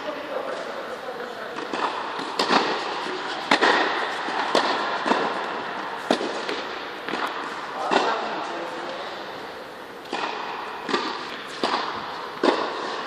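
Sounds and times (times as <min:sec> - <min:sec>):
background hiss: 0:00.0 - 0:13.0
tennis ball hit and bouncing: 0:01.6 - 0:08.4, 0:10.0 - 0:13.0.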